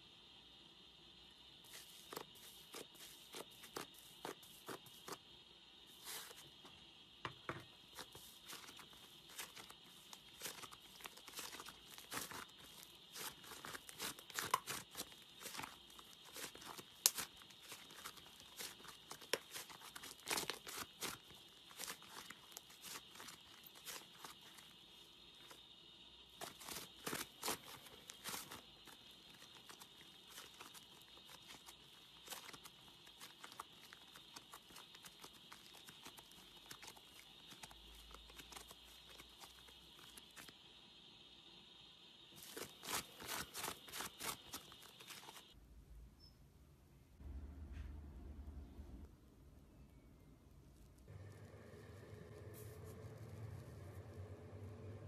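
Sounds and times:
faint steady hiss: 0.0s - 55.0s
slime crackling and tearing: 8.5s - 24.6s.

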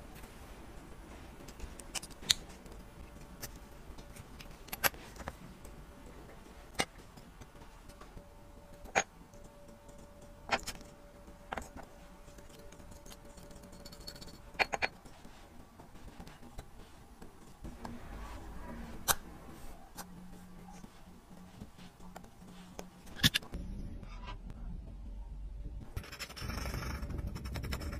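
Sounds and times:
metal parts clicking on hard surface: 8.7s - 15.2s.

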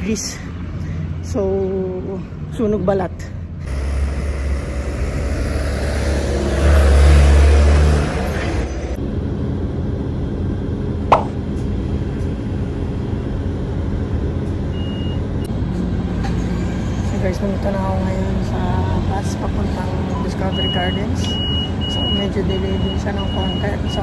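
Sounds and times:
bus and truck driving past: 0.0s - 24.0s
steady traffic hum: 0.0s - 24.0s
short falling blip: 11.1s - 11.4s.

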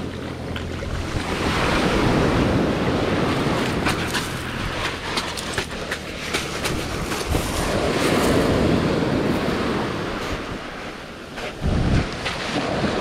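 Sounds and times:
surf washing on pebbles: 0.0s - 13.0s
wind buffeting microphone: 0.0s - 13.0s.

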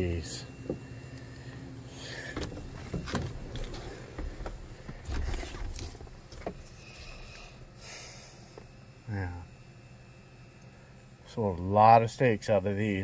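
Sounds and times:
knocks and clicks in car cab: 2.3s - 6.6s.

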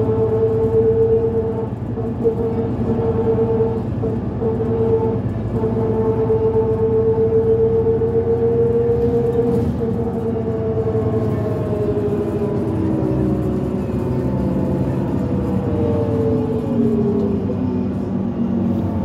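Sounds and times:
bus drivetrain whine: 0.0s - 19.0s
diesel engine rumble: 0.0s - 19.0s.

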